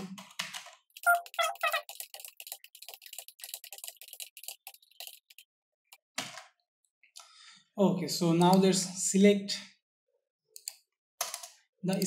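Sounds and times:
keyboard typing: 0.2s - 5.4s, 10.6s - 12.0s.

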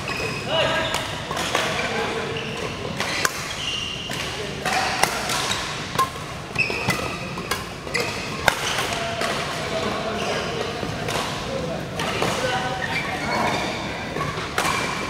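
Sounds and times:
shoe squeaks on court: 0.0s - 1.0s, 1.7s - 4.2s, 6.6s - 7.3s, 10.0s - 10.6s, 12.5s - 15.0s
rackets striking shuttlecock: 0.0s - 9.9s, 10.6s - 12.5s, 14.0s - 15.0s.

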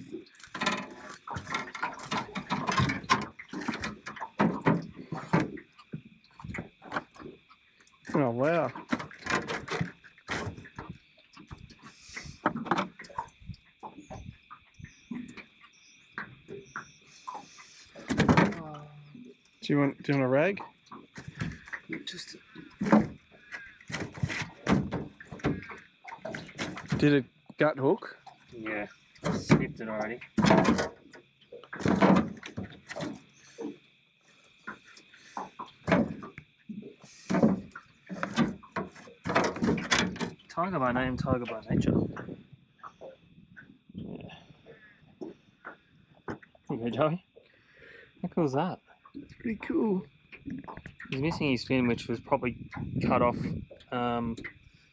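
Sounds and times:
insects chirring: 0.0s - 54.9s.

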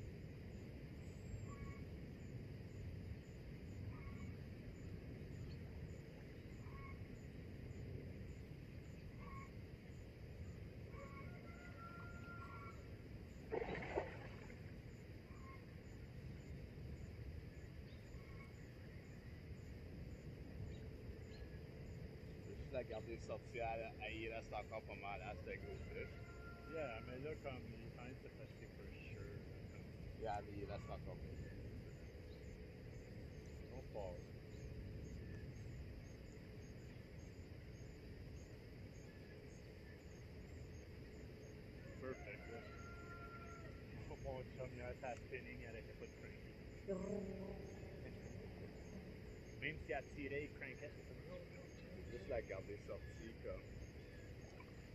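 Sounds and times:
insect chirping: 0.0s - 54.9s
faint bird chirps: 1.0s - 1.9s, 3.8s - 4.4s, 5.3s - 7.2s, 8.8s - 9.6s, 15.2s - 16.6s, 17.5s - 19.3s, 41.8s - 54.9s
low steady rumble: 43.7s - 54.9s.

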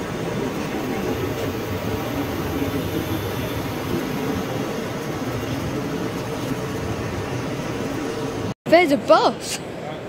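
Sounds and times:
exhibition hall background noise: 8.7s - 10.0s.

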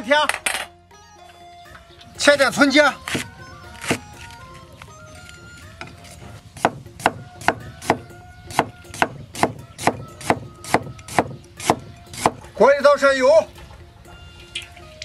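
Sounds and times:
cleaver chopping on wooden block: 6.6s - 12.4s.

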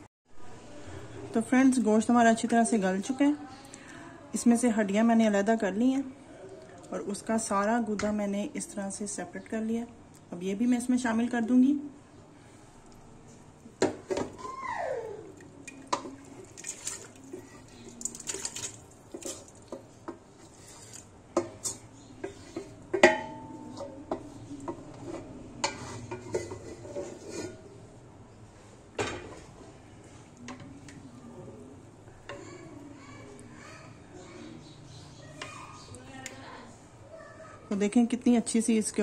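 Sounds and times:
spoon scraping metal plate: 20.3s - 27.8s
spoon clinking on metal pot: 21.4s - 24.8s.

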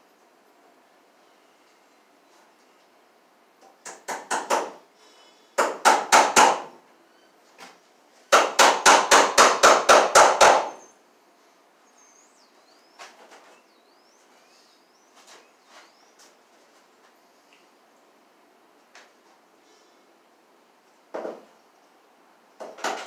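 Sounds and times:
hammer tapping staples into wood: 3.6s - 4.8s, 5.6s - 6.7s, 8.3s - 10.8s, 22.6s - 23.0s.

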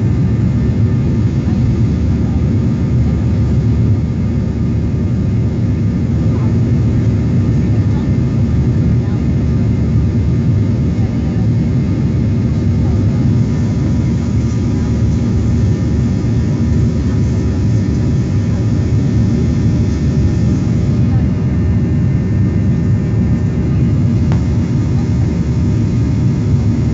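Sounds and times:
jet engines roaring in cabin: 0.0s - 26.9s.

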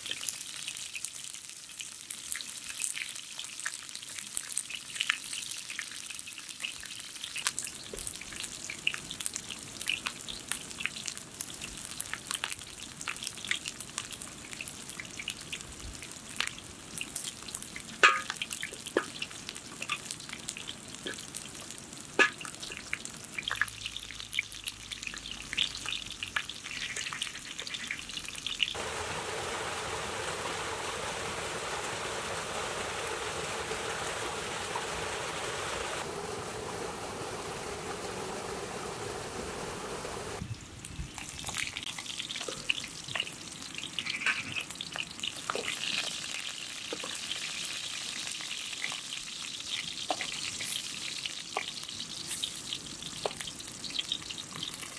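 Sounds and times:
squash frying in oil: 0.0s - 54.9s
small waterfall rushing: 28.8s - 40.4s.

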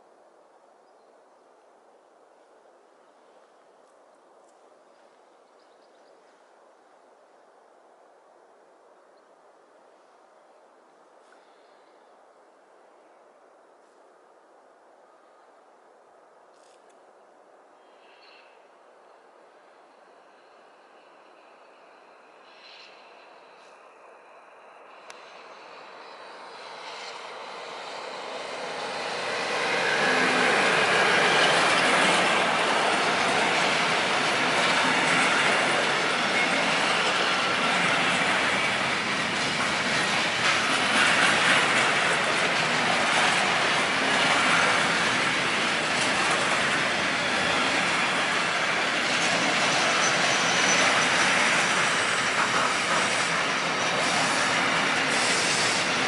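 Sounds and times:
freight train passing: 17.8s - 56.0s
wheels rolling on rail: 24.7s - 56.0s.

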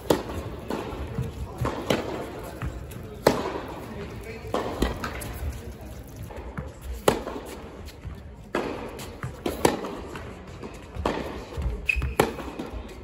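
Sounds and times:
tennis ball hit by rackets: 0.0s - 5.4s, 6.4s - 12.8s
shoe squeak: 11.7s - 12.5s.

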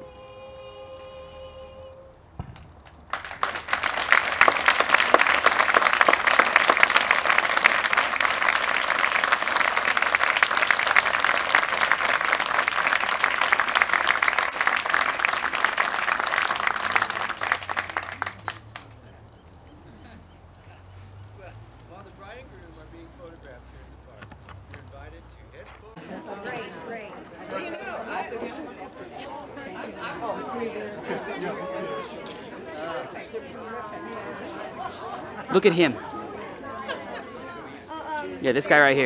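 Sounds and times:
audience applauding: 2.8s - 19.4s.

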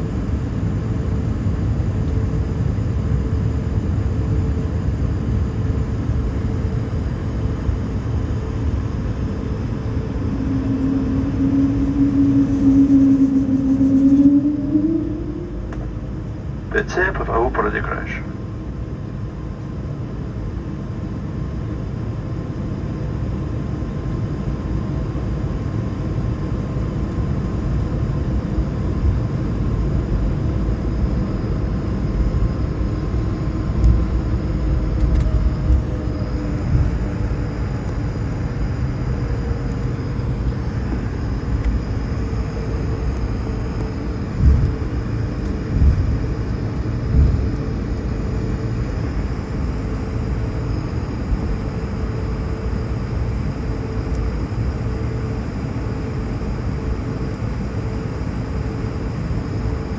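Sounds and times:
jet engine hum and rumble: 0.0s - 59.9s
faint tones drifting in pitch: 8.8s - 18.3s.

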